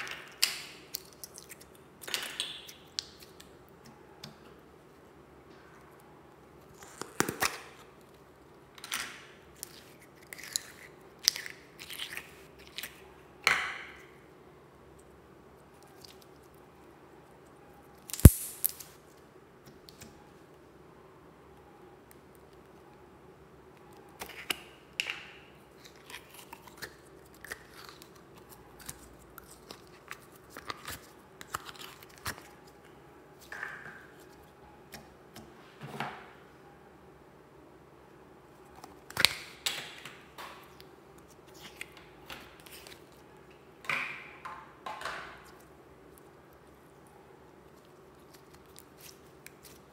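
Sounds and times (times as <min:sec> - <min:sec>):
slime squishing by hand: 0:25.6 - 0:35.4, 0:38.6 - 0:43.3, 0:45.4 - 0:49.9.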